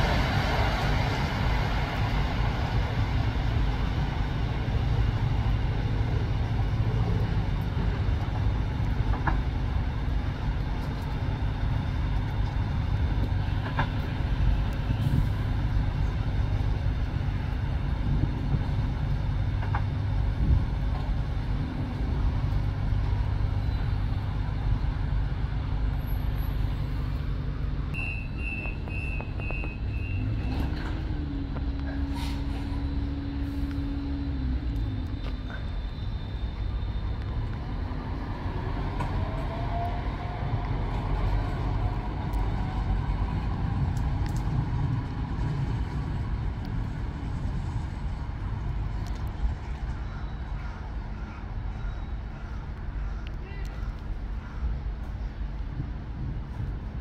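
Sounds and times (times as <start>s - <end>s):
train rumbling: 0.0s - 57.0s
short high beeps: 28.0s - 30.2s.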